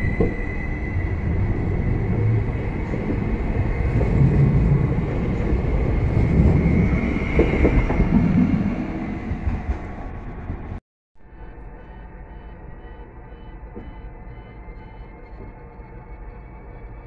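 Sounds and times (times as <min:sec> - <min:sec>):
train wheels rumbling on rail: 0:00.0 - 0:10.8
steady high whine: 0:00.0 - 0:17.0.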